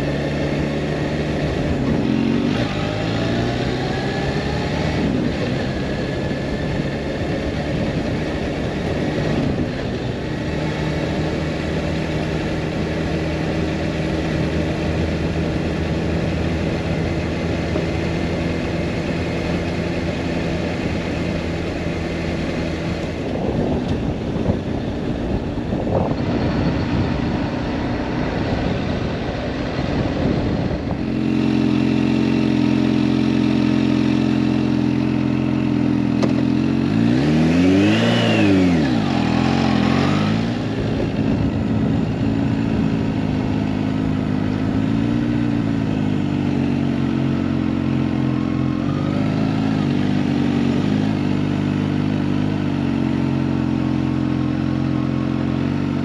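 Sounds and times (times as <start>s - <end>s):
motorcycle engine running: 0.0s - 56.0s
wind rush: 23.1s - 31.4s, 37.3s - 43.4s.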